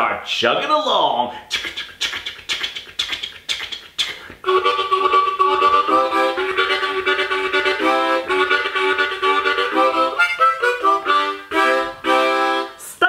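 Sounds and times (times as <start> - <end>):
harmonica chords: 1.5 - 13.0.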